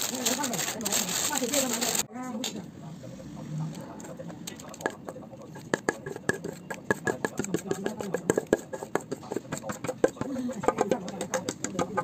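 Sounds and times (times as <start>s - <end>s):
metal spoon scraping a steel bowl: 4.0s - 12.0s.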